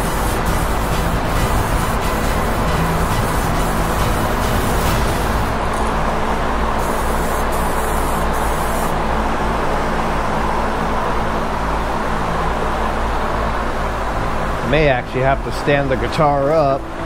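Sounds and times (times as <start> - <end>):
aerosol spray can hissing: 0.0 - 5.5, 6.8 - 9.0
fan drone: 0.0 - 17.0.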